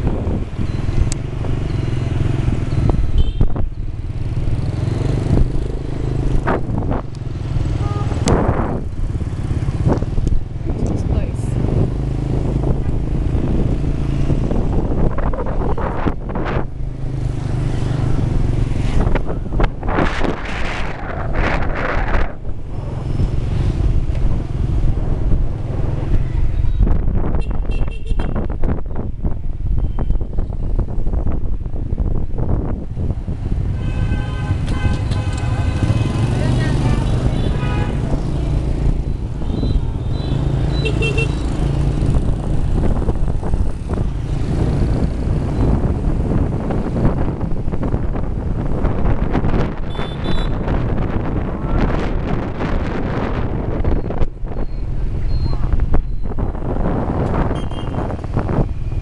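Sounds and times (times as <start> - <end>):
street traffic: 0.0 - 59.0
wind rumbling on microphone: 0.0 - 59.0
high beeps: 0.6 - 3.1, 54.6 - 56.3.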